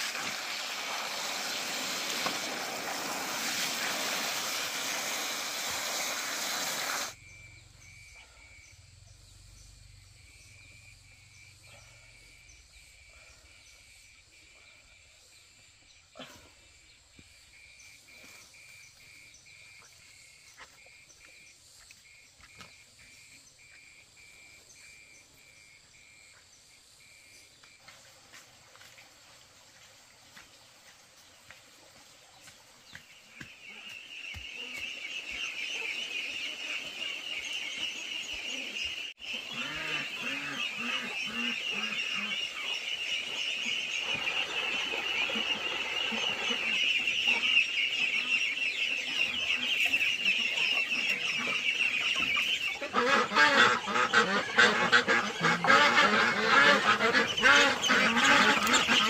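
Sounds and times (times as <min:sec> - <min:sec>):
water gushing from pipe: 0:00.0 - 0:07.2
frogs and insects chirping: 0:07.0 - 0:59.0.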